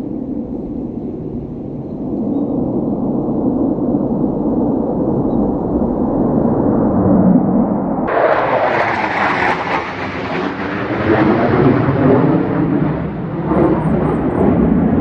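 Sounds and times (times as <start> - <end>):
fighter jet engine roar: 0.0 - 15.0.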